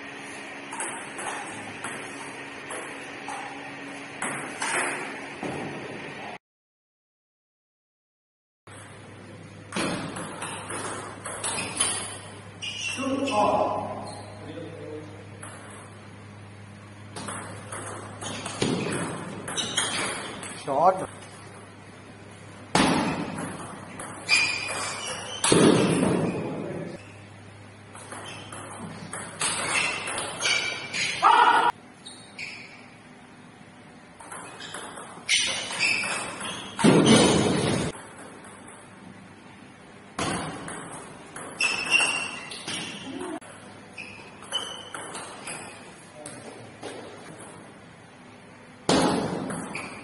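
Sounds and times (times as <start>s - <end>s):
table tennis ball hits: 0.7s - 3.6s, 4.2s - 5.8s, 9.7s - 12.3s, 15.4s - 16.0s, 17.1s - 20.6s, 22.7s - 26.7s, 27.9s - 31.0s, 34.2s - 38.9s, 40.2s - 43.7s, 44.4s - 47.7s, 48.8s - 50.0s
ping pong ball clicking: 27.9s - 30.4s.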